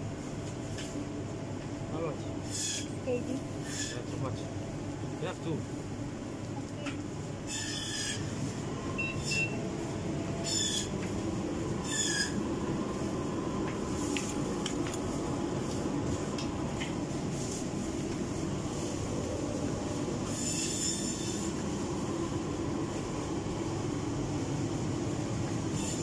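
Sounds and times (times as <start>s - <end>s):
short high squeaks: 7.5s - 8.2s, 10.4s - 10.9s, 11.8s - 12.4s.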